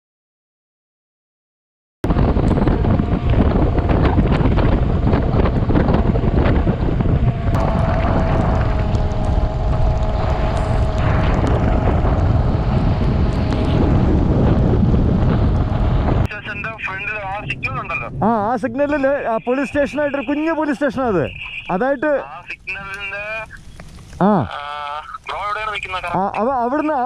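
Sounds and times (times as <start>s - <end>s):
wind buffeting microphone: 2.0s - 24.2s
motorcycle engine running: 2.1s - 16.3s.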